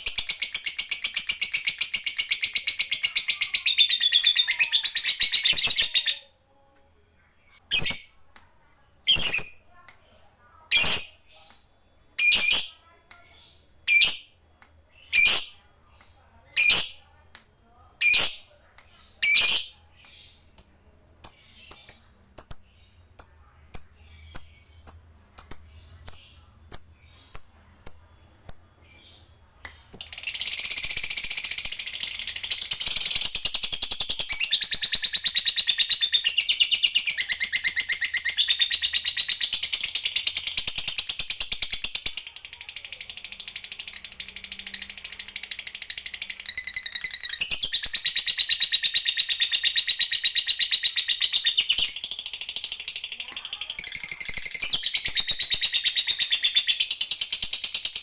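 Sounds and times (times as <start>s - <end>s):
lovebird chirps: 0.0s - 6.4s, 7.3s - 58.0s
lovebird high chatter trill: 0.0s - 6.4s, 7.4s - 29.2s, 29.8s - 58.0s.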